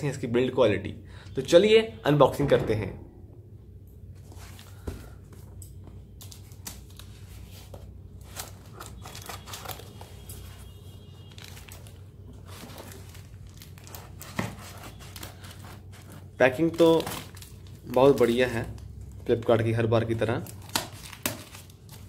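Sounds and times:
steady low hum: 2.3 - 8.2
tape crinkling and rustling: 4.2 - 22.0.

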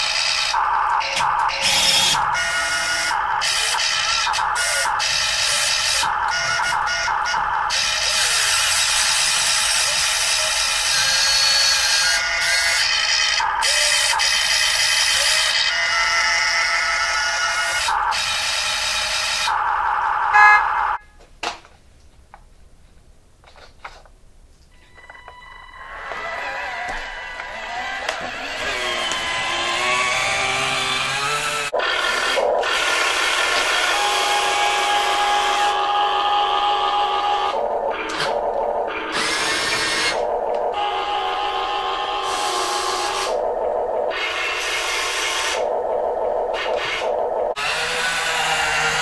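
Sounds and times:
electric motors and gearboxes whirring: 0.0 - 21.0, 24.9 - 49.0
hydraulic pump whine: 0.0 - 21.0, 24.9 - 49.0.

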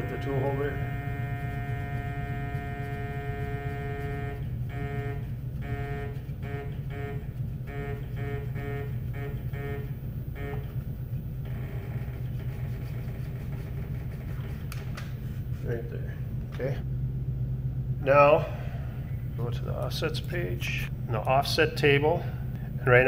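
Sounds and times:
lathe axis drive whining: 0.0 - 4.7
low machine hum: 0.0 - 23.0.

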